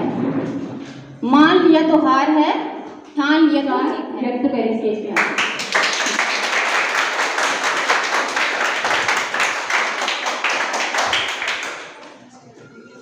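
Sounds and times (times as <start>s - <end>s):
audience clapping: 5.2s - 12.3s.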